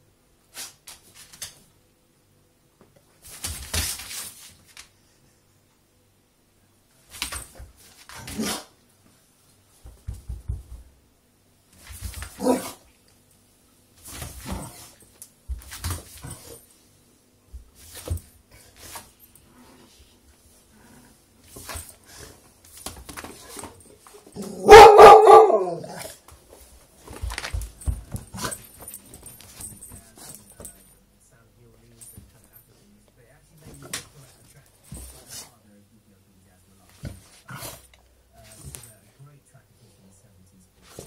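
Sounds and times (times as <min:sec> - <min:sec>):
dog barking: 0:12.4 - 0:12.8, 0:24.4 - 0:26.1.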